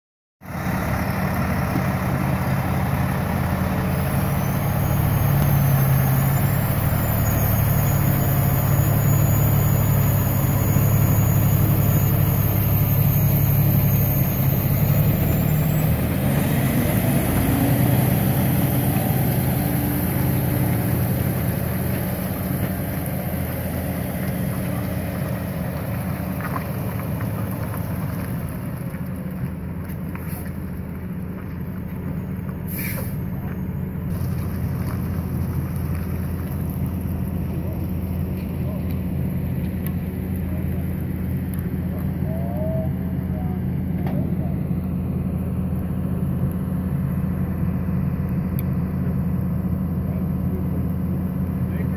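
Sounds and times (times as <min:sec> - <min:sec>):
truck diesel engine passing: 0:00.4 - 0:51.9.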